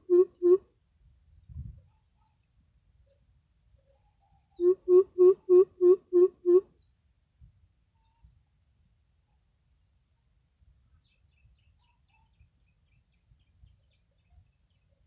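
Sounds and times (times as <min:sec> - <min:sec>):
bird deep hooting: 0:00.0 - 0:00.6, 0:04.6 - 0:06.7
faint insect buzz: 0:00.0 - 0:09.4.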